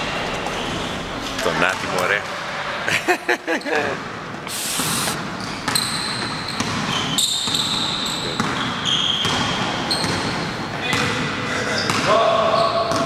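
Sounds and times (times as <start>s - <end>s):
shoes squeaking on court floor: 0.0s - 2.2s, 4.8s - 13.0s.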